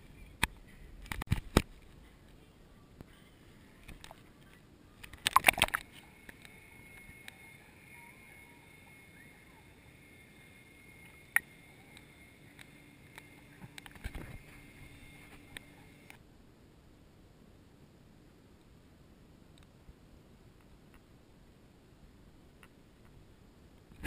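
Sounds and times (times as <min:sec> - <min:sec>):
faint steady whine: 0:00.0 - 0:24.0
water splashing and sloshing: 0:05.0 - 0:06.0.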